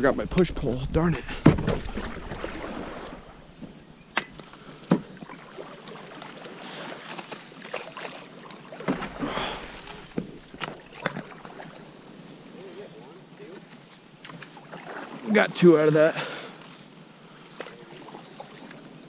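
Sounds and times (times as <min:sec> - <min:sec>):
paddle knocks and splashes: 0:01.2 - 0:03.7, 0:04.8 - 0:11.8.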